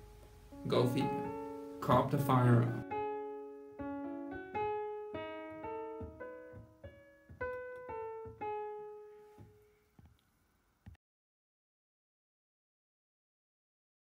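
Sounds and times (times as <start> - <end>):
slow piano melody: 0.0 - 10.1.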